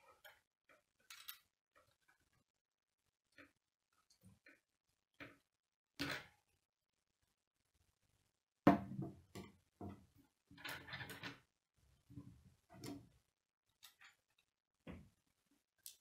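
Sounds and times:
plastic pieces clicking and knocking: 0.1 - 2.3.

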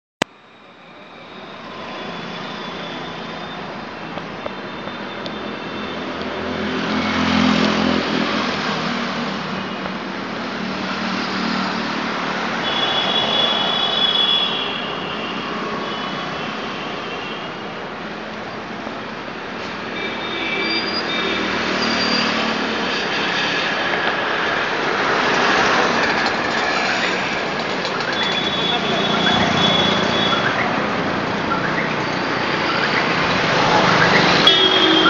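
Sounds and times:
motor vehicles passing: 6.0 - 12.6, 21.4 - 35.0.

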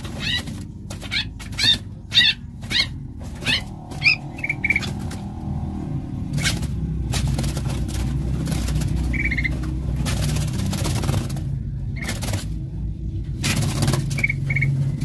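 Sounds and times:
bird high notes and trill: 0.0 - 5.3
bird harsh calls: 0.0 - 5.6, 8.5 - 11.3, 13.5 - 15.0
low rumble of handling: 0.0 - 15.0.

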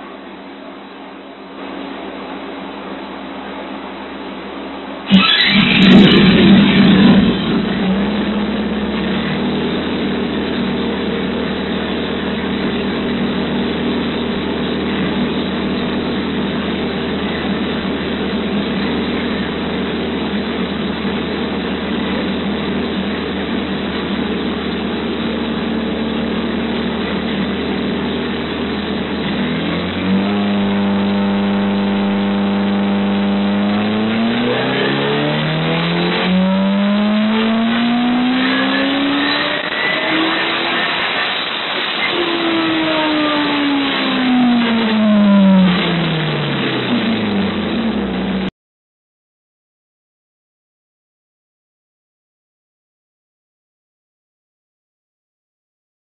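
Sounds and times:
motorcycle engine revving: 5.0 - 48.5.

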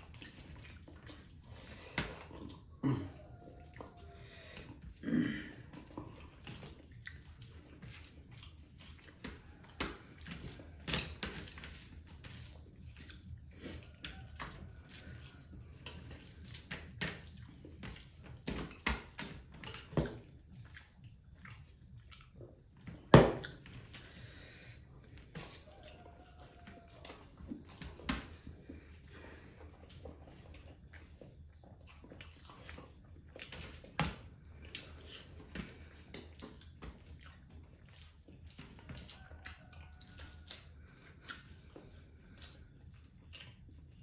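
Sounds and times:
wet squishing of hands mixing food: 0.0 - 44.0.

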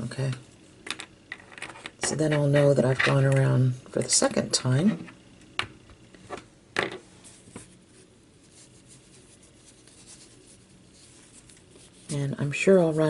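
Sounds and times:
fabric rustling: 7.1 - 12.2.

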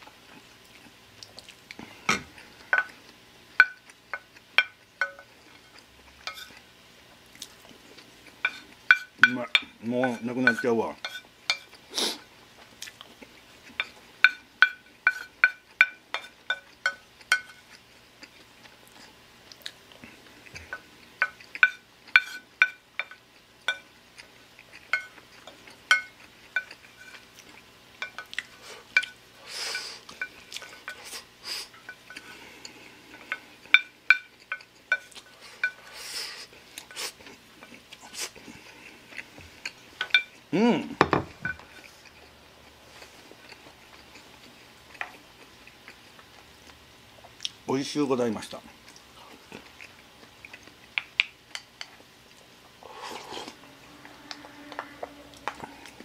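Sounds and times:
wooden spoon clinking on ceramic plate: 8.5 - 11.6.

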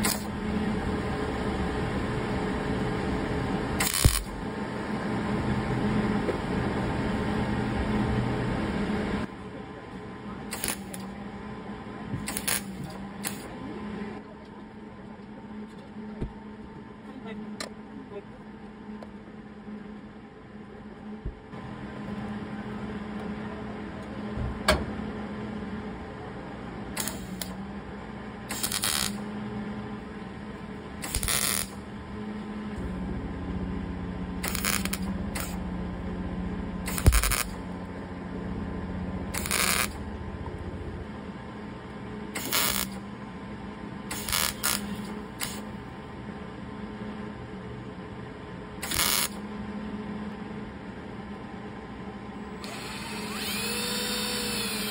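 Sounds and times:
welder bursts: 0.0 - 0.3, 3.8 - 4.4, 10.5 - 11.1, 12.2 - 13.5, 26.9 - 27.6, 28.5 - 29.3, 31.0 - 31.9, 34.3 - 35.6, 36.8 - 37.6, 39.3 - 40.0, 42.3 - 43.0, 44.1 - 45.7, 48.8 - 49.4, 52.6 - 54.9
steady hum: 0.0 - 54.9.

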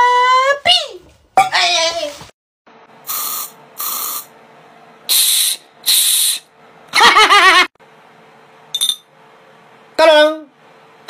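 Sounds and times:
aerosol spray hissing: 5.1 - 6.4.

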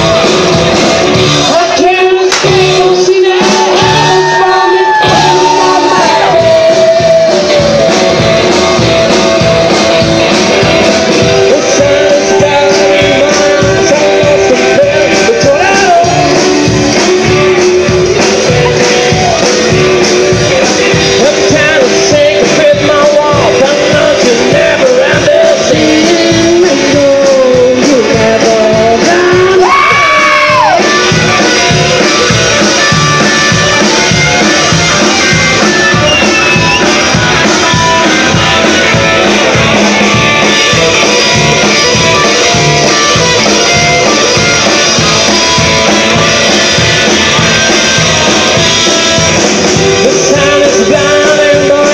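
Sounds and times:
person singing: 0.0 - 51.9
rock and roll band playing: 0.0 - 51.9.

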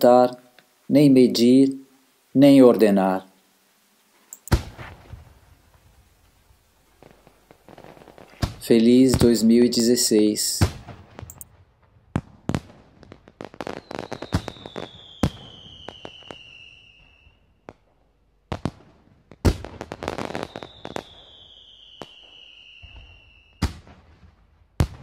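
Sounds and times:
fireworks bangs and crackling: 4.5 - 25.0
firework whistles sliding down: 13.6 - 17.4, 20.1 - 23.7.

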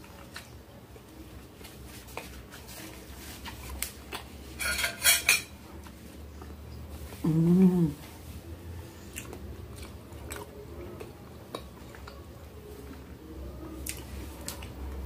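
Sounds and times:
metal spoon scraping glass dish: 4.6 - 5.5.

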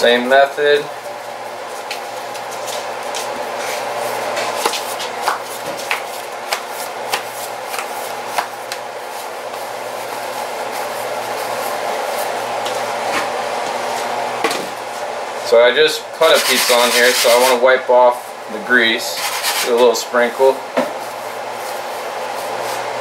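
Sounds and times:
steady hum: 0.0 - 23.0
hands patting dough: 1.7 - 12.9.

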